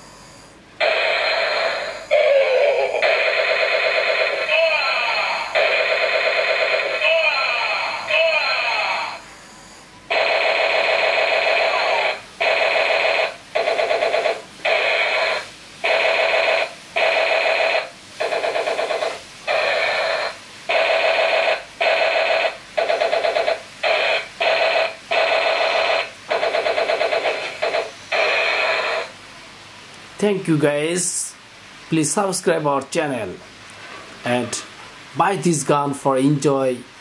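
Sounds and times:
toy blaster electronic shooting sound: 0:00.8 - 0:09.0, 0:10.1 - 0:29.1.

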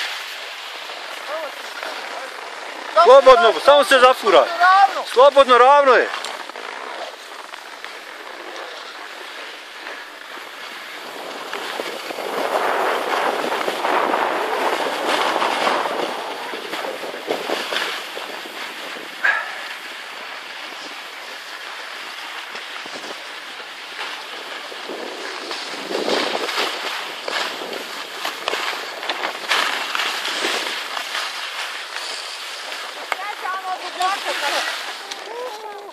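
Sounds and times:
skis scraping over snow: 0:00.0 - 0:35.9.

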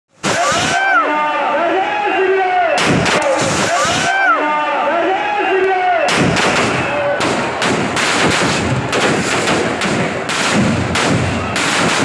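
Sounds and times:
firecrackers banging: 0:02.8 - 0:04.1, 0:06.1 - 0:12.0.

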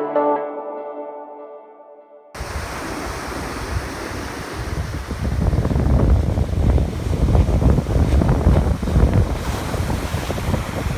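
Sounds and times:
surf breaking on beach: 0:02.4 - 0:10.9
wind buffeting microphone: 0:02.4 - 0:10.9.

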